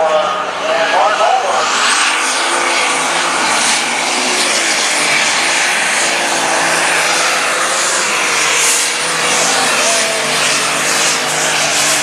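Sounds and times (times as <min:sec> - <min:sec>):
tractor engine howling under load: 0:02.4 - 0:12.0.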